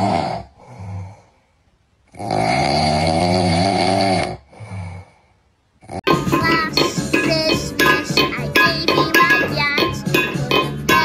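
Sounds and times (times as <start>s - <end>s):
soft breath: 0.5s - 1.8s, 4.5s - 5.6s
loud rasping snoring: 2.1s - 5.1s.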